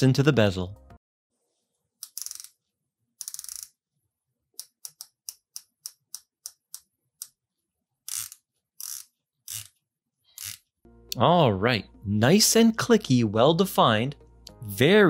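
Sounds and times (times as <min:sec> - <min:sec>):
watch bezel clicking: 0:02.0 - 0:02.6, 0:03.2 - 0:03.8, 0:04.6 - 0:07.4, 0:08.1 - 0:09.7.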